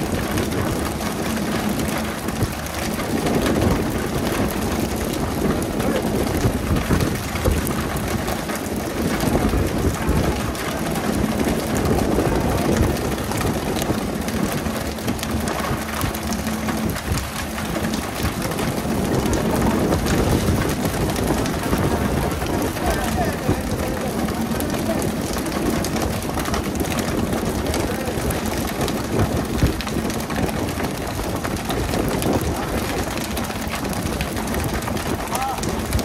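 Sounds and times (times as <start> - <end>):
boat engine running: 0.0 - 36.0.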